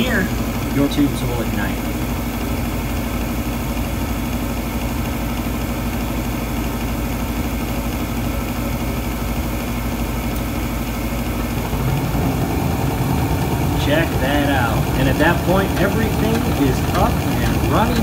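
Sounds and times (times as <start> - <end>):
furnace fan motor humming: 0.0 - 18.0
gas burners lighting: 10.2 - 18.0.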